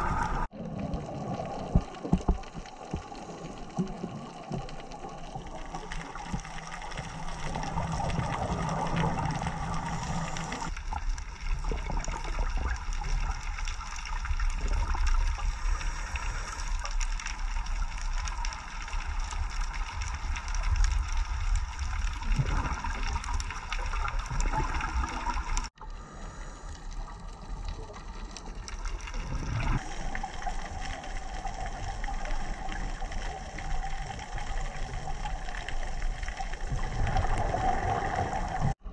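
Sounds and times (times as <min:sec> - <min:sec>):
muffled underwater gurgling: 0:00.0 - 0:10.7.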